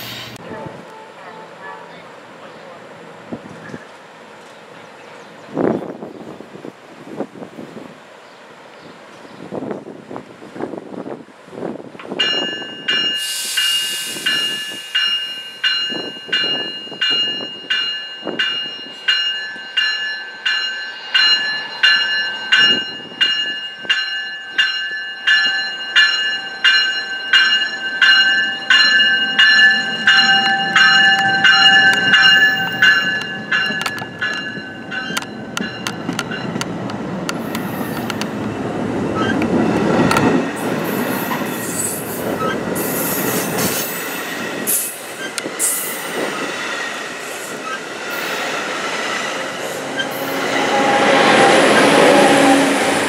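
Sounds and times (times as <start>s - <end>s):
railroad bell ringing: 0.0s - 2.0s, 12.1s - 36.8s
train rumble: 9.0s - 53.0s.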